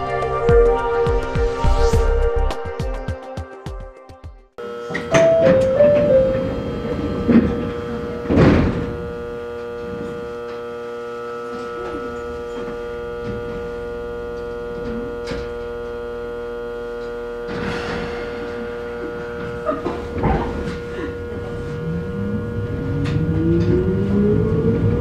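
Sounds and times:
electric train humming: 0.0 - 3.0, 4.6 - 25.0
sliding doors shutting thunk: 4.9 - 9.2.

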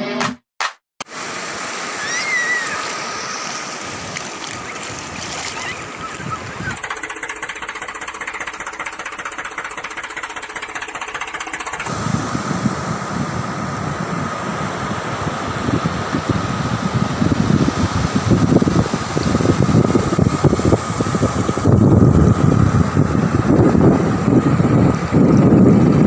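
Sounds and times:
small motor rattling and whining: 3.1 - 12.1
wind buffeting microphone: 3.9 - 6.9, 11.9 - 26.0.

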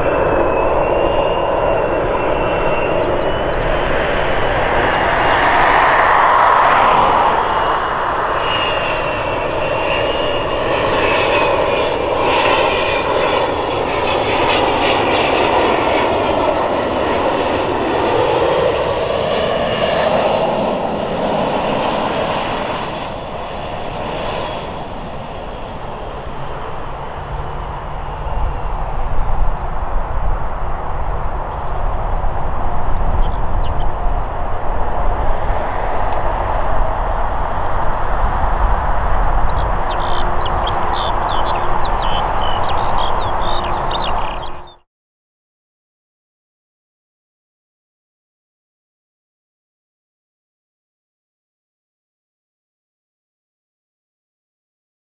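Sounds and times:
low rumble: 0.0 - 10.2, 26.6 - 44.7
jet engine rush with whine: 0.0 - 44.8.

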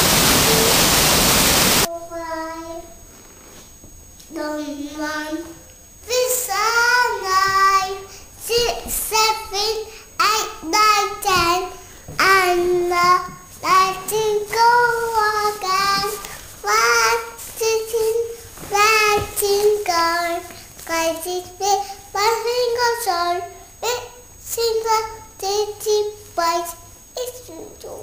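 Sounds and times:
toddler singing: 1.9 - 2.8, 4.4 - 28.0.

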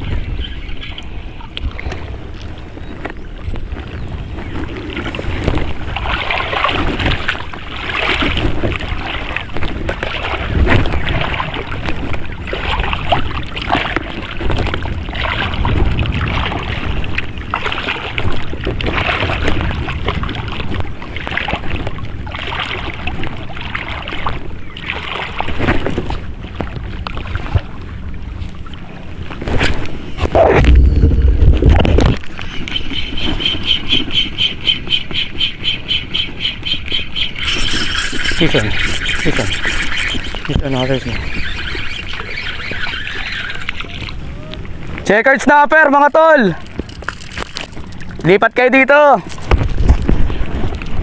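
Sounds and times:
wind buffeting microphone: 0.0 - 24.7, 29.2 - 32.9, 49.4 - 51.0
waves lapping on rocky shore: 3.8 - 28.0, 37.3 - 51.0.

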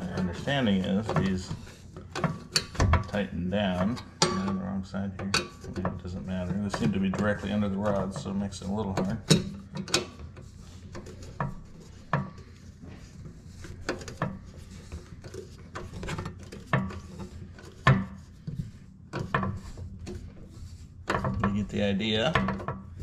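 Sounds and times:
screwdriver scraping on metal: 0.0 - 4.6, 5.3 - 23.0.

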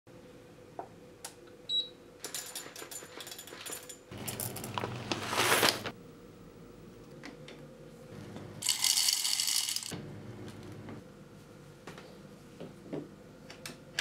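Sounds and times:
coffee beans clattering into metal cup: 2.2 - 5.9, 8.6 - 9.9.

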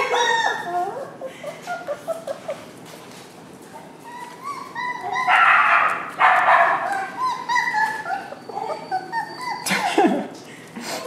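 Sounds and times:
puppies yipping and whining: 0.0 - 3.1, 3.8 - 10.2
dog barks: 5.3 - 7.1.

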